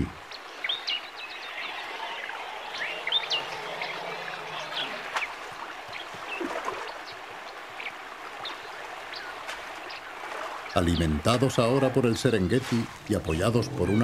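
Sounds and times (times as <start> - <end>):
river water rushing: 0.0 - 14.0
bird chirps: 0.3 - 6.5.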